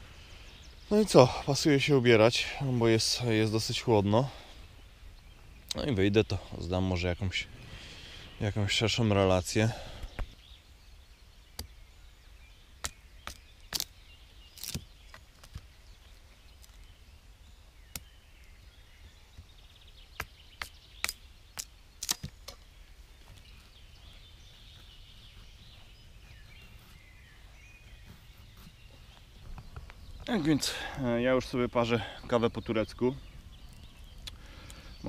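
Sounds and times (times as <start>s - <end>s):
faint outdoor background: 0.0s - 35.0s
kindling cracking as it is split: 14.6s - 15.7s.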